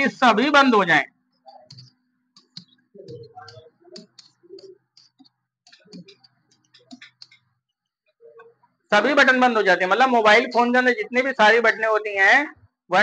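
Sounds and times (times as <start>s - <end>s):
marker writing on whiteboard: 1.5s - 7.5s.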